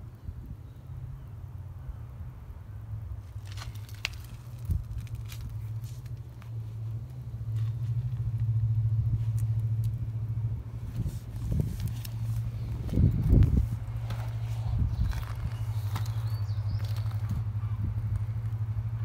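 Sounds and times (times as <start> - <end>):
low rumble: 4.2 - 19.0.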